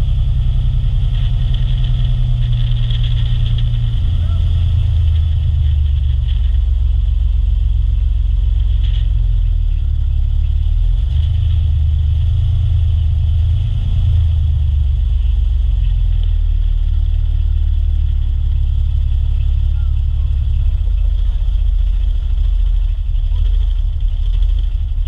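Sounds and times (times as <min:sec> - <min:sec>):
boat engine low drone: 0:00.0 - 0:25.0.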